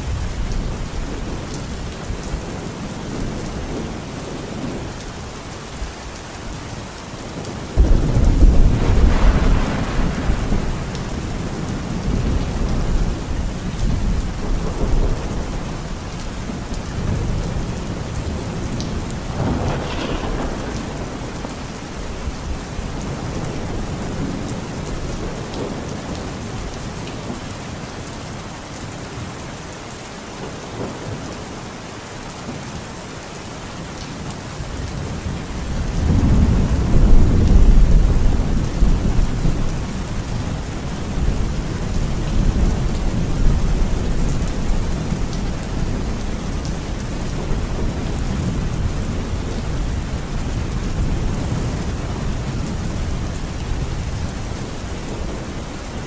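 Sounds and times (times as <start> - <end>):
heavy rain pouring: 0.0 - 56.0
thunder rumbling: 7.4 - 26.4, 35.1 - 55.8.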